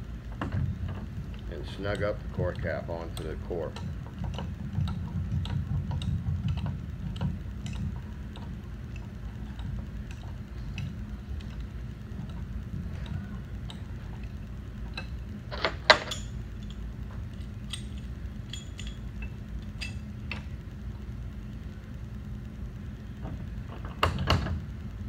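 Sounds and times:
low hum: 0:00.0 - 0:25.0
wrench clinking on metal: 0:17.4 - 0:20.0.

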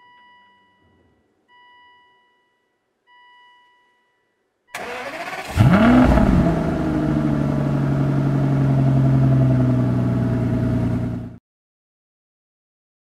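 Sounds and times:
car engine revving and idling: 0:04.8 - 0:11.4.

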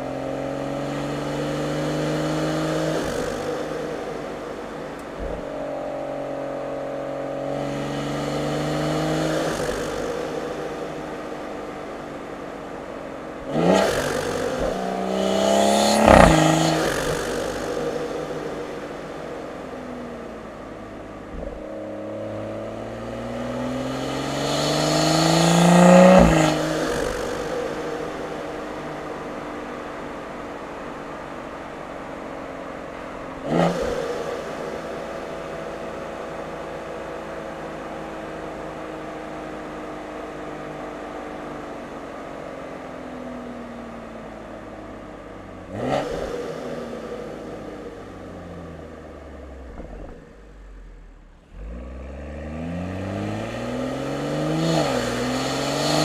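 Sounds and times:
car engine revving: 0:00.0 - 0:56.0
exhaust crack: 0:01.7 - 0:06.4, 0:07.5 - 0:36.6, 0:45.4 - 0:56.0.

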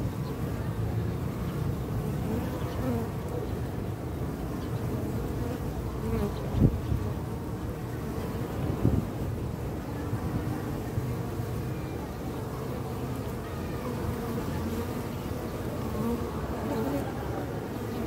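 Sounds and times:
bees buzzing around hive: 0:00.0 - 0:18.0
single bees flying past: 0:12.5 - 0:18.0.

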